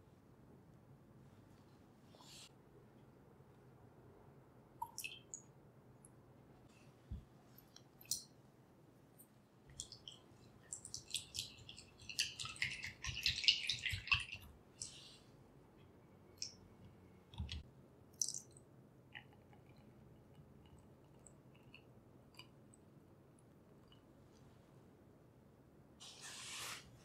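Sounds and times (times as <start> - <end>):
liquid sloshing: 9.7 - 15.0.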